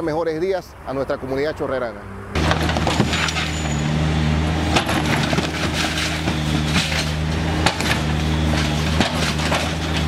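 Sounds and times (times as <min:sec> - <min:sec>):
concrete blocks crunching and falling: 0:02.4 - 0:03.8, 0:04.7 - 0:10.0
backhoe diesel engine running: 0:02.4 - 0:10.0.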